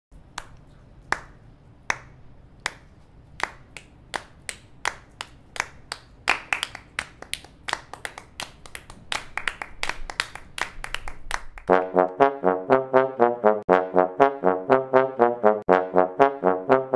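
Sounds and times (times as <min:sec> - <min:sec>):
brass music: 0:11.7 - 0:16.9.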